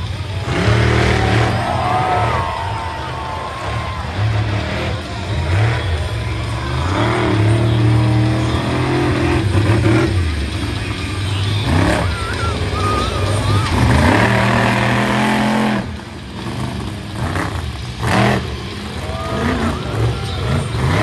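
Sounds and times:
monster truck engine revving: 0.0 - 21.0.

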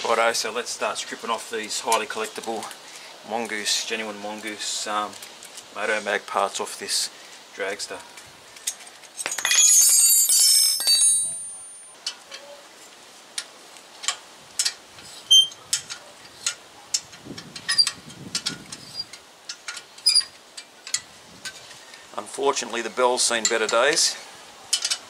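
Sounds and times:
metal hand tools clattering: 8.7 - 12.5.

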